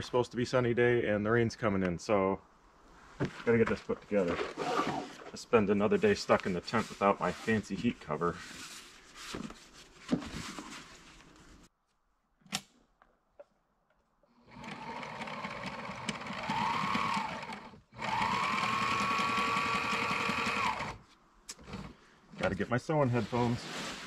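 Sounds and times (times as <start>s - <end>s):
sewing machine stitching: 14.5s - 21.0s.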